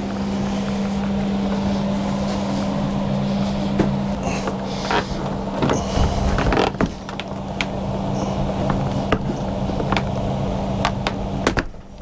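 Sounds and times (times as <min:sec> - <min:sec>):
steady low hum: 0:00.0 - 0:12.0
refrigerator knocking and creaking: 0:03.7 - 0:12.0.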